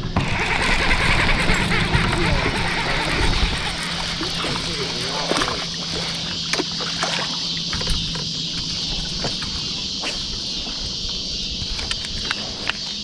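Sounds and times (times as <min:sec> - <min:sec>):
boat motor hum: 0:00.0 - 0:13.0
fishing reel cranking and clicking: 0:00.4 - 0:06.1.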